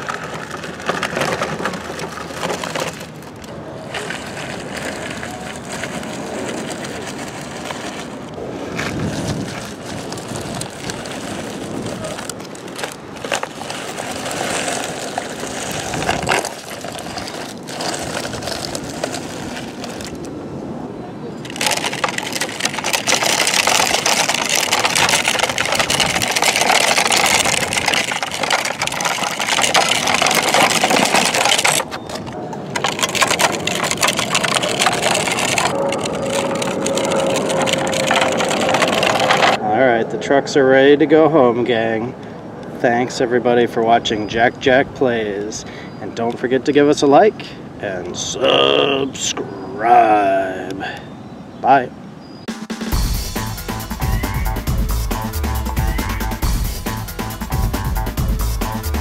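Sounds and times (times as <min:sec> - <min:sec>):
toy truck wheels grinding on sand: 0:00.0 - 0:20.4, 0:21.4 - 0:39.6.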